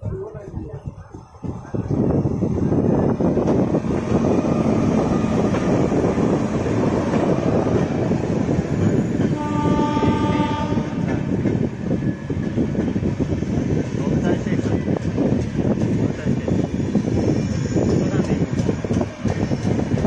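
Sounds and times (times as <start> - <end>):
train wheels rumbling and clattering: 0.0 - 20.0
train horn: 9.3 - 11.2.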